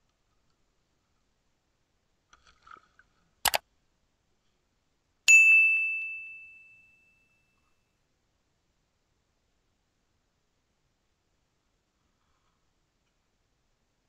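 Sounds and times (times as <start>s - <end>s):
notification bell ding: 5.3s - 7.3s.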